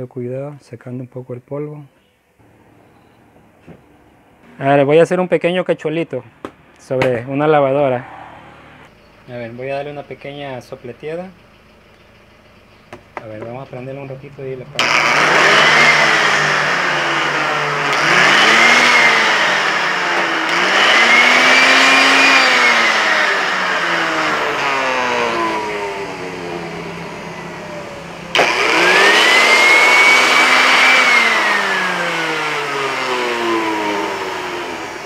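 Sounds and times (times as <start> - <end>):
electric air blower whining: 14.5 - 35.0.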